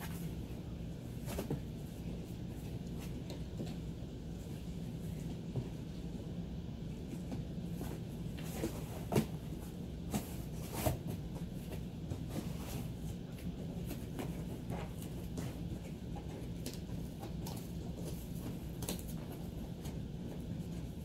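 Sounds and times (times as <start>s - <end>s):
steady low hum: 0.0s - 21.0s
cardboard scraping and rustling: 7.7s - 16.6s.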